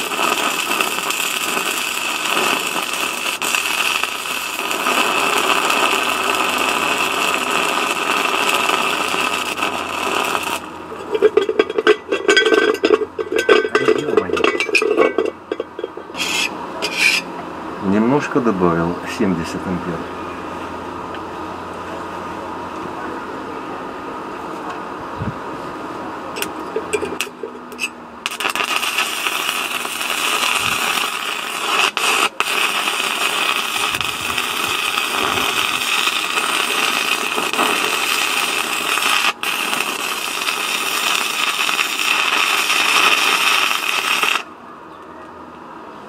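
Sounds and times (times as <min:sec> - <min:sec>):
welding arc crackling hiss: 0:00.0 - 0:11.2, 0:16.2 - 0:17.2, 0:26.4 - 0:44.5.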